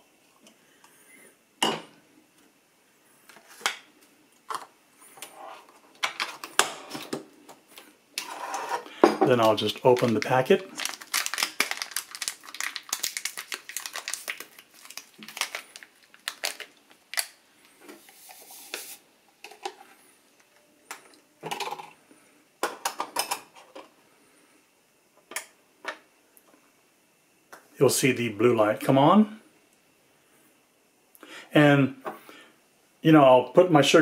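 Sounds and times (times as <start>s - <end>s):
powder pouring with a hiss: 9.3s - 16.8s, 17.6s - 19.1s
foil sachet tearing and crinkling: 9.4s - 17.4s.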